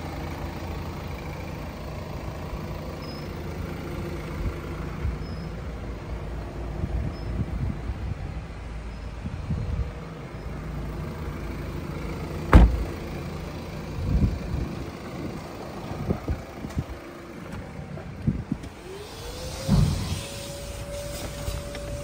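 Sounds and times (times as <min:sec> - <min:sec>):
car door slamming: 0:12.4 - 0:13.1, 0:19.5 - 0:22.0
soft knocks and bumps: 0:12.5 - 0:13.0.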